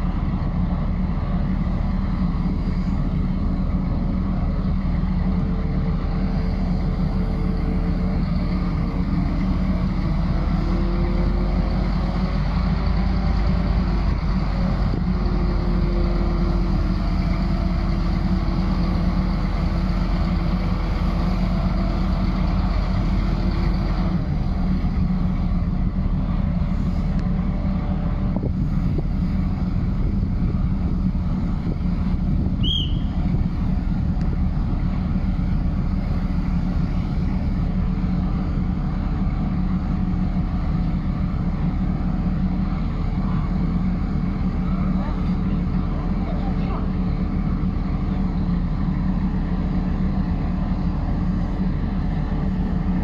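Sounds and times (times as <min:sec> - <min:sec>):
crane engine running: 0:00.0 - 0:53.0
wind buffeting microphone: 0:26.8 - 0:35.2
short high chirp: 0:32.6 - 0:33.2.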